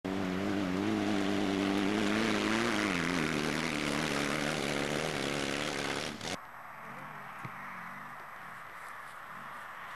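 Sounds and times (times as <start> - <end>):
racing vehicle engine running hard: 0.0 - 6.4.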